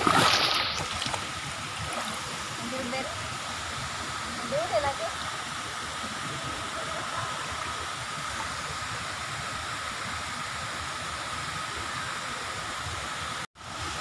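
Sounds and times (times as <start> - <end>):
water rushing into rock pool: 0.0 - 9.9.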